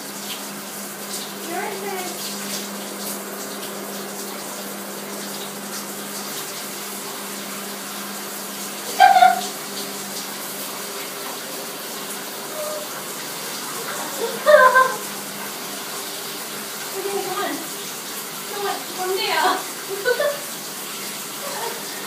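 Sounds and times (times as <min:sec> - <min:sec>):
shower water spraying: 0:00.0 - 0:22.0
short high-pitched cry: 0:08.9 - 0:09.5.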